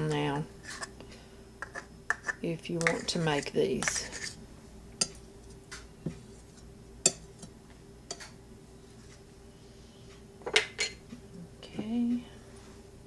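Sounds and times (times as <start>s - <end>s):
faint steady hum: 0.0s - 13.0s
utensil clinking on metal bowl: 5.0s - 5.2s, 7.0s - 7.5s, 8.1s - 8.4s.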